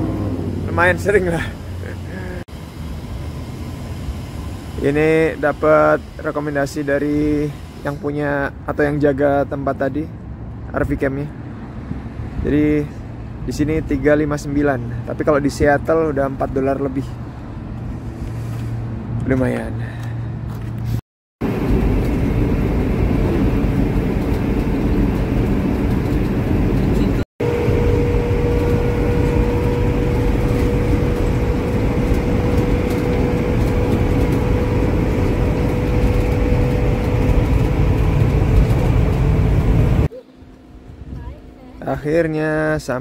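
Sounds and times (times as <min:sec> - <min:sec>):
steady whine: 0:00.0 - 0:09.2, 0:21.4 - 0:43.0
road and engine rumble: 0:00.0 - 0:43.0.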